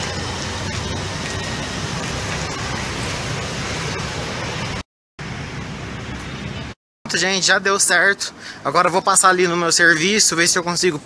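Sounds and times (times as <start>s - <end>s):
low buffeting rumble: 0.0s - 8.0s.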